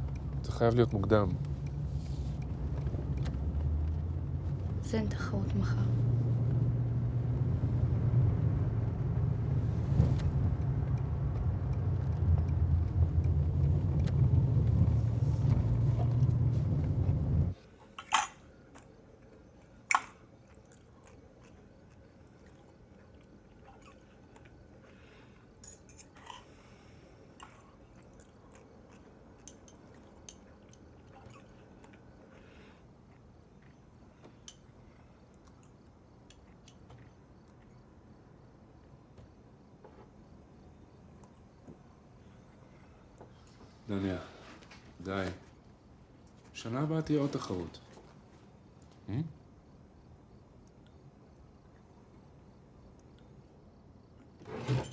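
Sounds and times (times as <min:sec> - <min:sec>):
car cabin rumble: 0:02.2 - 0:17.5.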